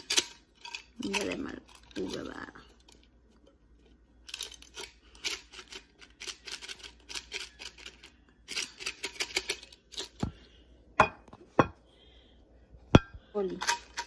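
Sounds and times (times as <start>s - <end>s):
potato sticks rattling from a can: 0.0s - 3.1s, 4.2s - 10.2s.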